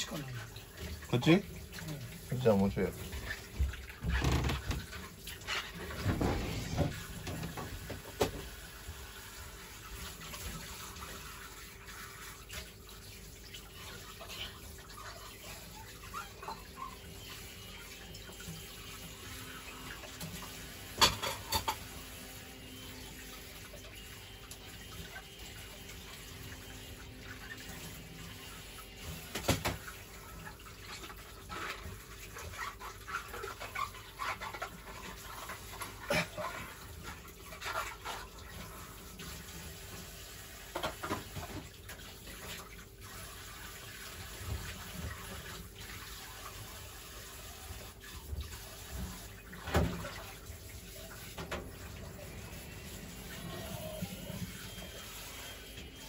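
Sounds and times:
dishware clinking against sink: 0:21.0 - 0:22.0.

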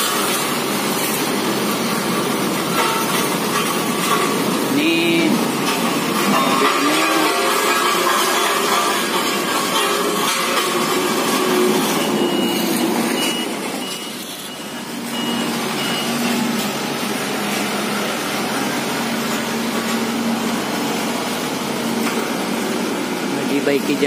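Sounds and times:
diesel engine running: 0:00.0 - 0:24.0
reversing alarm beeping: 0:06.3 - 0:16.6.

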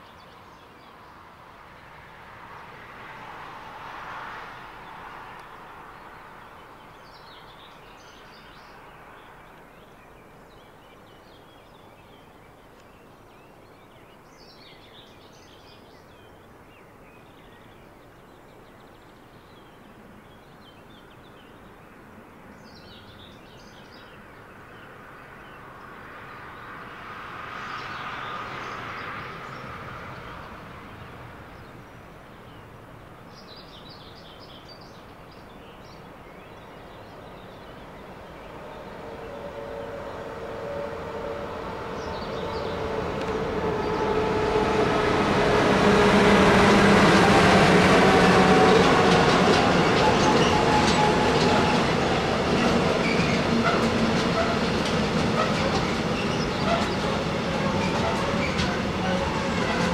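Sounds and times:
songbird singing: 0:00.0 - 0:03.3, 0:04.6 - 0:59.9
distant freight train rumble: 0:35.0 - 0:59.9.

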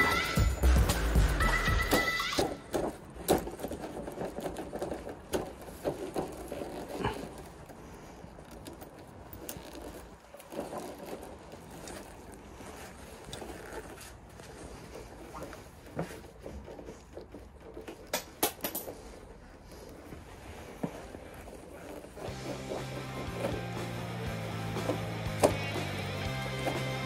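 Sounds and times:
background music: 0:00.0 - 0:02.5, 0:22.3 - 0:27.0.

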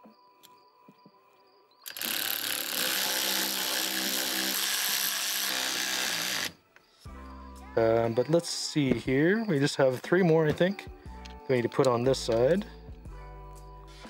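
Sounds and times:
electric ratchet running: 0:01.9 - 0:06.6.

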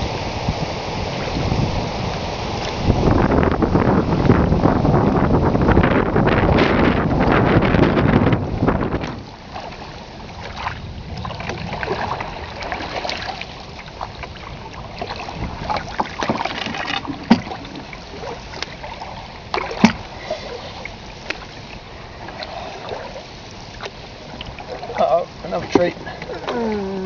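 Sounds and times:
water lapping against hull: 0:00.0 - 0:27.0
paddle strokes splashing: 0:06.2 - 0:27.0.

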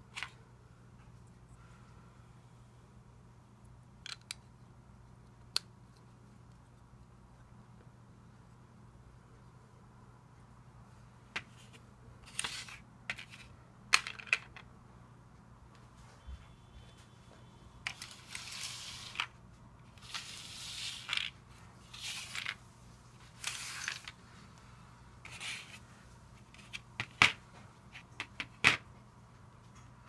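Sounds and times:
plastic bricks clicking together: 0:04.0 - 0:04.4
plastic pieces scraping on table: 0:17.8 - 0:22.6, 0:23.4 - 0:24.2.

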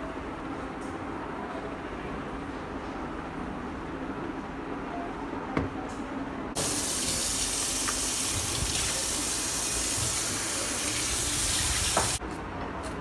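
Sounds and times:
tap water splashing into sink: 0:06.6 - 0:09.0, 0:10.8 - 0:12.2.

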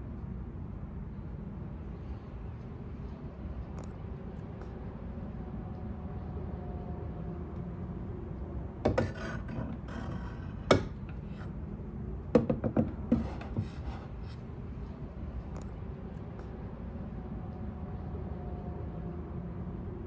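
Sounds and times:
glass scraping along wood: 0:08.9 - 0:11.6, 0:12.8 - 0:14.4
bottle knocking on wooden rack: 0:12.4 - 0:13.3.

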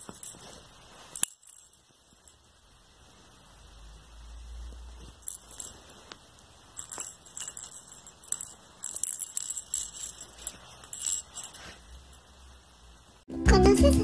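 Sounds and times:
light metallic jingling: 0:00.0 - 0:02.6, 0:05.0 - 0:12.3.

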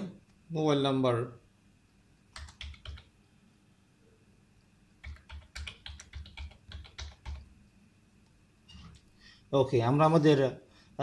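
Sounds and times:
computer keyboard keystrokes: 0:02.3 - 0:03.1, 0:05.0 - 0:07.5.

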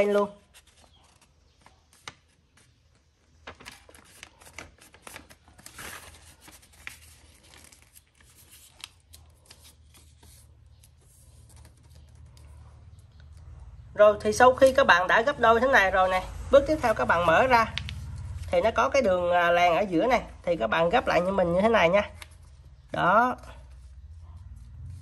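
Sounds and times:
paper rustling and crackling: 0:00.0 - 0:13.0.

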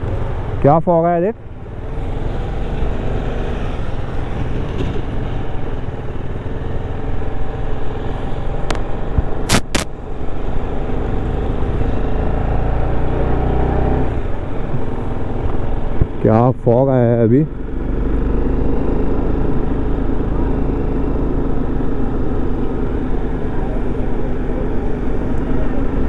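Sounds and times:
motorcycle engine running: 0:00.0 - 0:26.0
sharp clicks: 0:09.4 - 0:09.9.

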